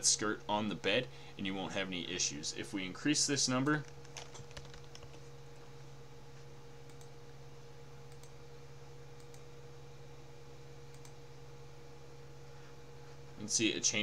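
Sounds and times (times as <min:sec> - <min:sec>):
steady low hum: 0:00.0 - 0:14.0
key presses: 0:04.0 - 0:05.2
computer mouse clicks: 0:06.9 - 0:07.1, 0:08.1 - 0:08.4, 0:09.2 - 0:09.5, 0:10.9 - 0:11.2.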